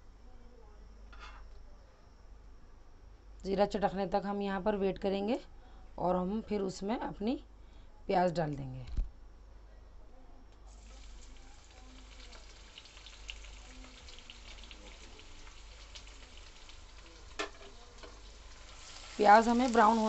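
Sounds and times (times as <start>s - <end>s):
onions sizzling in hot oil: 10.7s - 20.0s.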